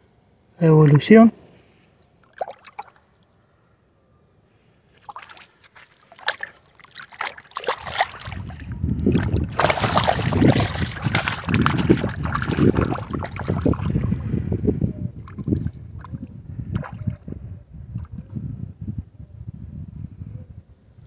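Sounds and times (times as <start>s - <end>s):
fish splashing in river water: 2.1s - 3.2s, 4.9s - 14.2s.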